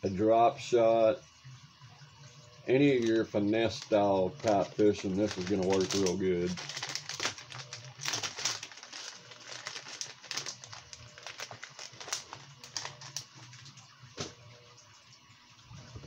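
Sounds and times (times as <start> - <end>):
plastic bags crinkling: 2.8 - 14.4.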